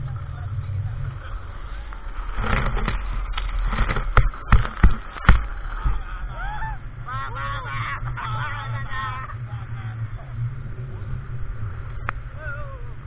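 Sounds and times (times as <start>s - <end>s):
steady low drone: 0.0s - 13.0s
sharp knocks: 3.7s - 5.5s
people shrieking and calling out: 6.3s - 8.5s.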